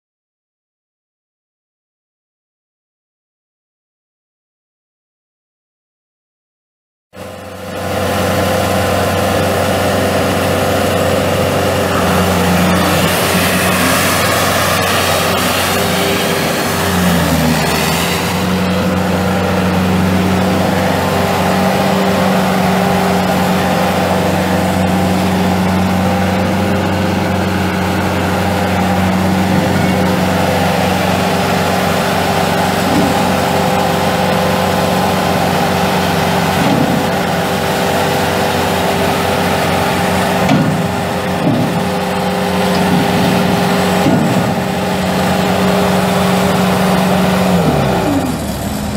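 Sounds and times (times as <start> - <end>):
diesel engine running at high speed: 7.2 - 48.9.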